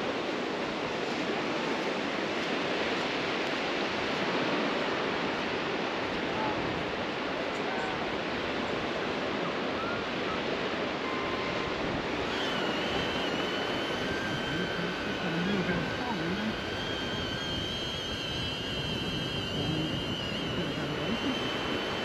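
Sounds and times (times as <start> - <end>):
sea surf: 0.0 - 22.0
wind: 0.0 - 22.0
drone propellers whine: 7.8 - 22.0.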